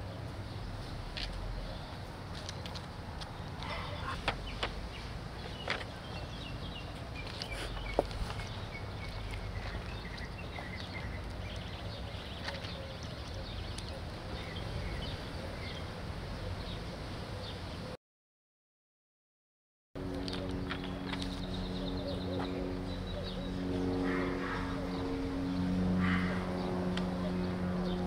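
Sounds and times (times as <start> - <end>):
small birds chirping: 0.0 - 17.9, 20.2 - 28.0.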